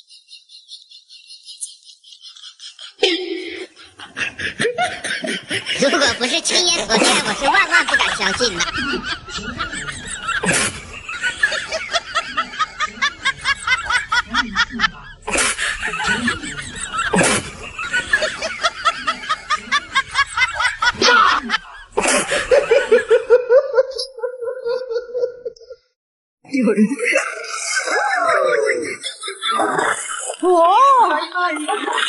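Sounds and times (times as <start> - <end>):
low steady laugh: 0.0 - 25.8, 27.1 - 32.0
snickering laughter: 0.0 - 25.8, 27.4 - 30.4.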